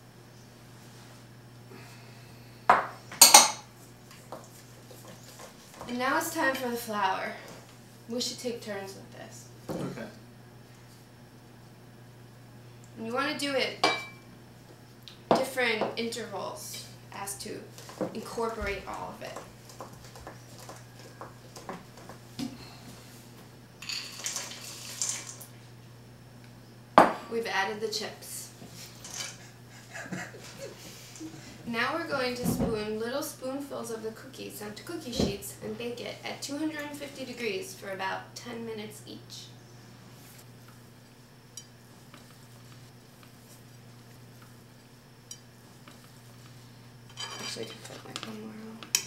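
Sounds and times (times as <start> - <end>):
steady low hum: 0.0 - 24.2, 25.4 - 49.0
chocolate chips rustling: 23.8 - 25.4.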